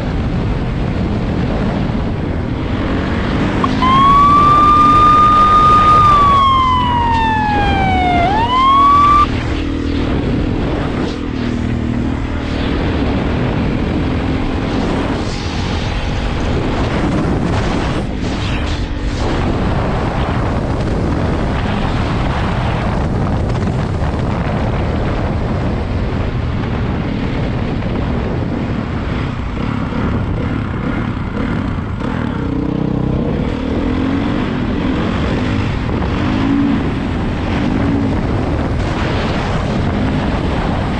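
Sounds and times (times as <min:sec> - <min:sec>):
wind noise: 0:00.0 - 0:32.1, 0:33.2 - 0:40.9
dirt bike engine: 0:03.6 - 0:09.3
siren wailing: 0:03.6 - 0:09.3.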